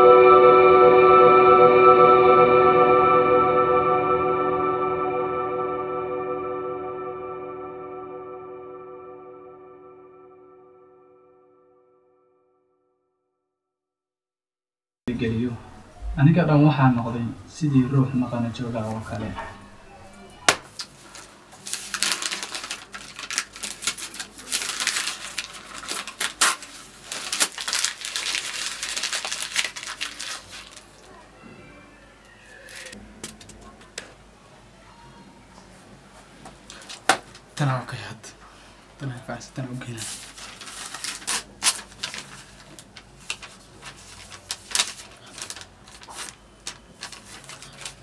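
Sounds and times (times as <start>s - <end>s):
paper rustling and crinkling: 20.5s - 31.2s, 39.9s - 48.0s.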